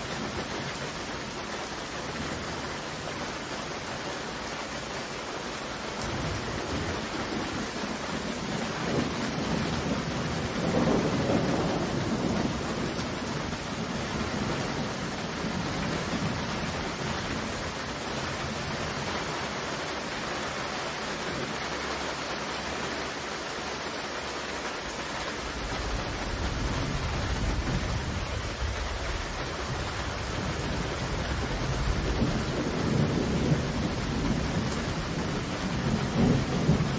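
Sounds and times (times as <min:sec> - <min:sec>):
steady rain hiss: 0:00.0 - 0:36.9
thunder rumbling: 0:05.9 - 0:19.5, 0:25.4 - 0:36.9.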